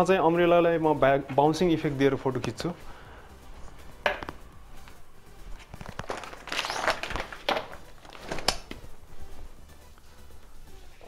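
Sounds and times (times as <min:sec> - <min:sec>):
umbrella fabric rustling: 0:03.5 - 0:09.8.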